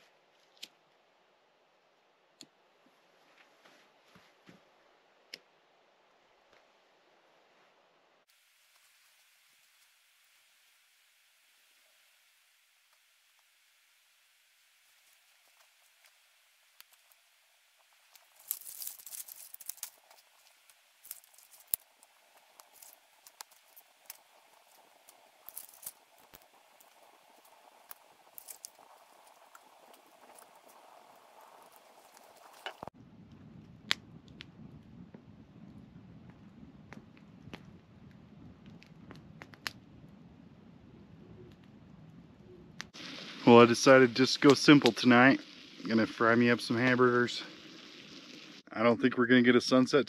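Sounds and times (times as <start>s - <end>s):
twig fire crackling: 0.0s - 48.6s
dry sticks clicking: 18.1s - 32.9s.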